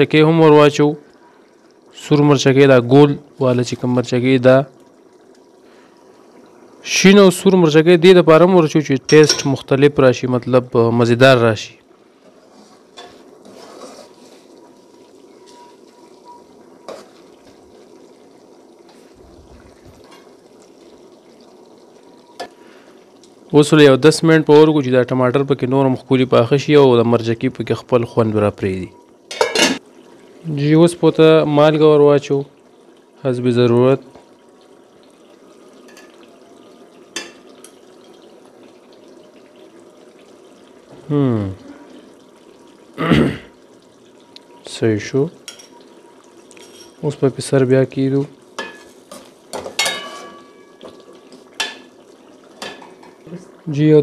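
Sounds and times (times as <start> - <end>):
sauce simmering and sizzling: 0.0 - 54.0
spoon scraping pot: 12.2 - 14.5
metal spoon clinking on pot: 49.8 - 50.7.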